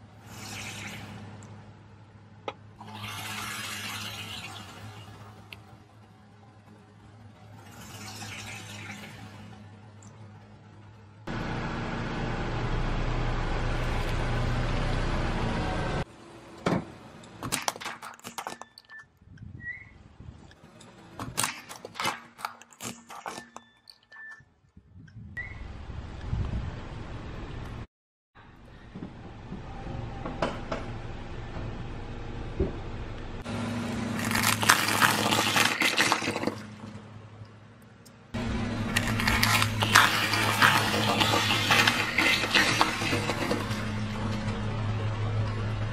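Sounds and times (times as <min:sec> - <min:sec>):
tyres on wet concrete: 0:00.2 - 0:01.5, 0:17.3 - 0:19.1, 0:20.6 - 0:24.4, 0:34.1 - 0:44.6
car engine running: 0:10.2 - 0:16.0
sharp clicks and cracks: 0:17.2 - 0:19.1
eggshells crunching under a tyre: 0:34.2 - 0:36.7, 0:38.9 - 0:43.9.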